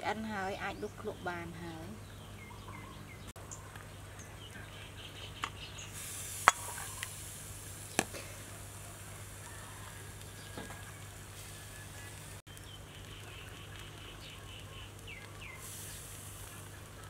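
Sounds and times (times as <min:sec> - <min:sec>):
broth simmering hiss: 0:03.4 - 0:17.0.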